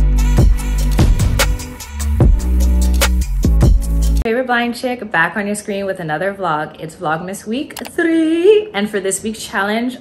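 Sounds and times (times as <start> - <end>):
drum beat: 0.4 - 4.2.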